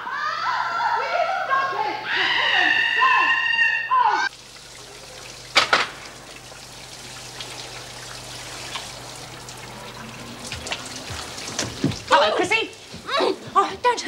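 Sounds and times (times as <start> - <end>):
shower water spraying: 4.3 - 14.0.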